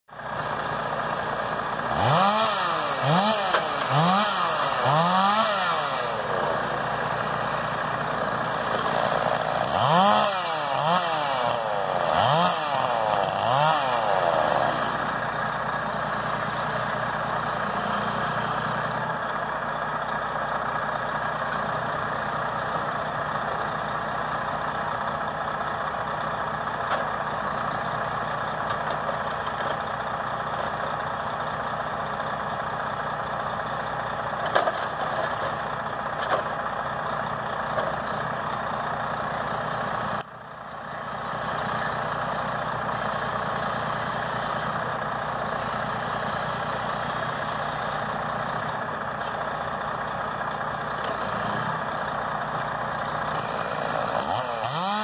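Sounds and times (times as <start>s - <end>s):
truck engine idling: 0.1s - 55.0s
chainsaw revving: 0.3s - 18.9s, 53.2s - 55.0s.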